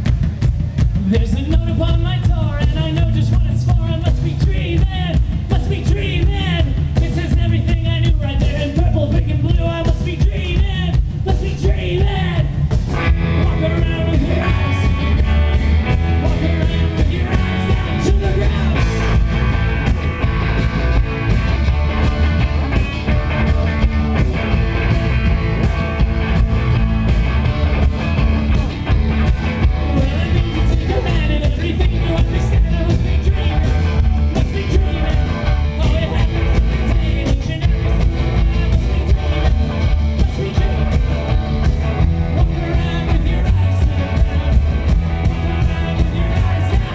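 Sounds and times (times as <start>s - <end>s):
bass guitar: 0.0s - 46.9s
drum kit: 0.0s - 46.9s
electric guitars: 0.0s - 46.9s
person singing: 13.2s - 19.6s, 29.2s - 46.9s.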